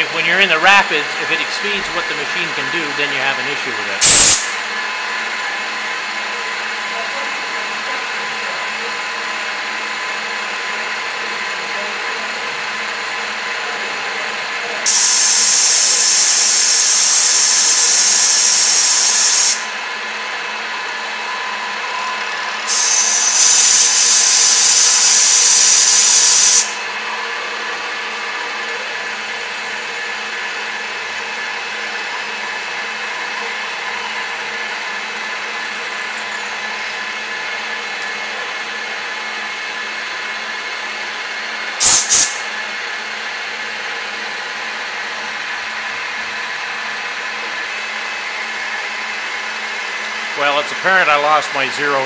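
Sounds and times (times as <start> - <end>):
loud high-pitched hiss: 0.0 - 4.6, 14.9 - 19.7, 22.7 - 26.8, 41.8 - 42.5
milling machine humming: 0.0 - 15.0, 19.7 - 41.7.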